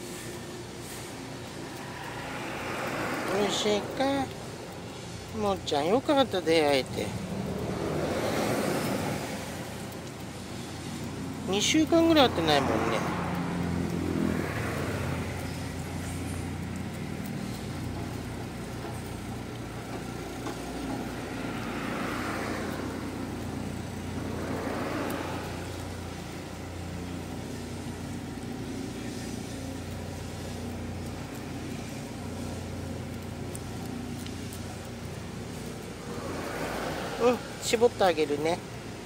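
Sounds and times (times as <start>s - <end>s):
motor traffic rumble: 0.0s - 39.0s.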